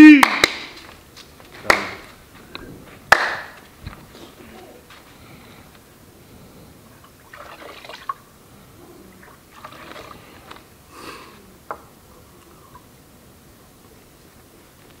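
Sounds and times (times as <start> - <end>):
liquid pouring and trickling: 7.0 - 8.2, 9.2 - 10.6.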